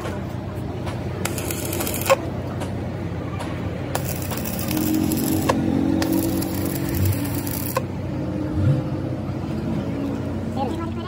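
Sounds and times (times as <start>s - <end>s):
welding arc crackling: 1.2s - 2.2s, 3.9s - 7.9s.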